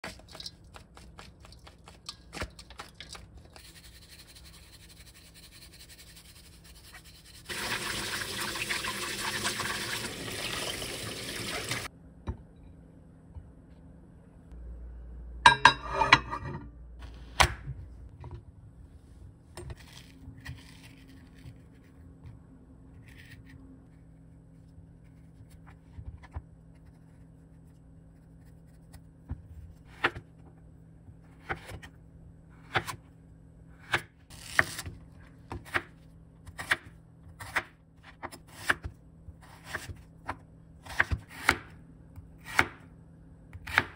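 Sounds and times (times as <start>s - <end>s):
tap water running into colander: 7.5s - 11.9s.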